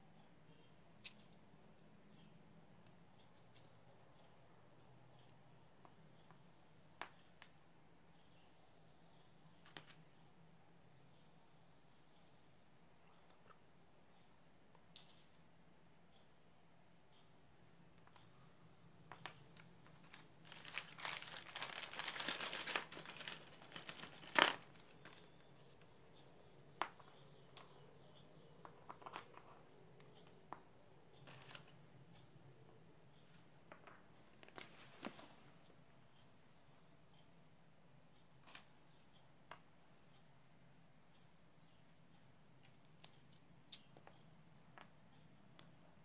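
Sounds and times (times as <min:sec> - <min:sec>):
plastic packaging crinkling: 0:20.0 - 0:25.2.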